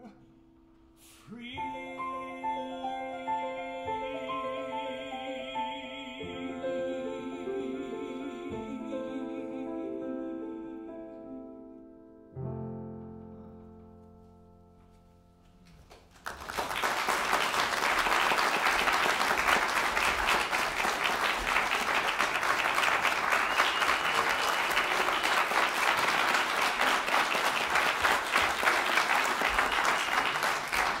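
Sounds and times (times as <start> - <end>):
piano chord: 0.0 - 15.7
audience applause: 15.7 - 31.0.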